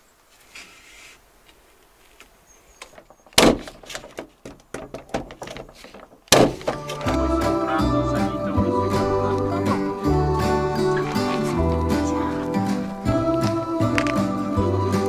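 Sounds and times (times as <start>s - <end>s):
nail gun firing: 3.4s - 4.0s, 6.3s - 6.8s.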